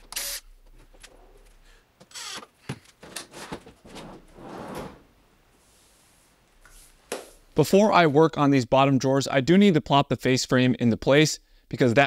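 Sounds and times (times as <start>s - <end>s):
drawers sliding on slides: 3.1s - 5.1s.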